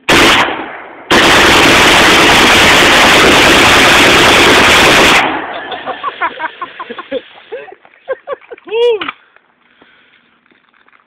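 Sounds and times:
rifle firing rapid burst: 0.1s - 5.5s.

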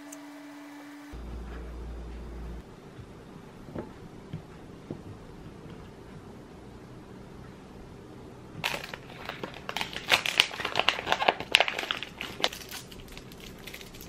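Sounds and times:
plastic packaging crinkling: 8.6s - 14.0s.

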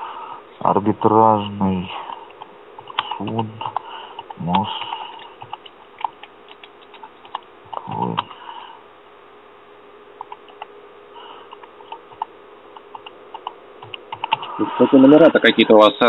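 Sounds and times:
keyboard key clicks: 5.4s - 8.3s.

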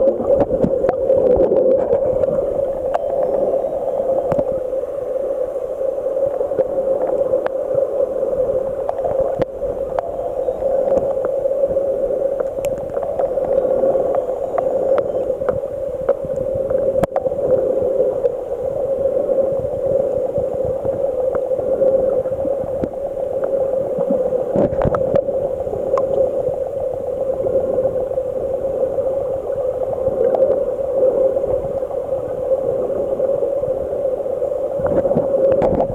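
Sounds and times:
small underwater clicks: 0.0s - 4.8s, 6.2s - 7.9s, 8.7s - 18.4s, 20.1s - 27.9s, 29.6s - 31.9s, 34.8s - 35.9s
muffled underwater drone: 0.0s - 35.9s
underwater disturbance: 0.0s - 35.9s.

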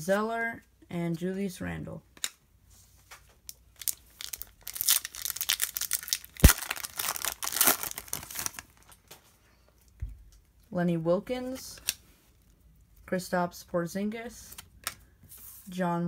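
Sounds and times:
wrapper tearing and crinkling: 3.5s - 9.1s
wrapper sharp snap: 4.8s - 8.6s.

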